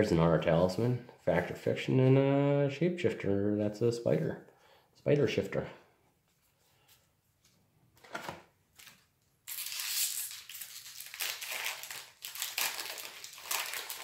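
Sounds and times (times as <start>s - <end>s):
foil wrapper tearing and crinkling: 8.8s - 14.0s.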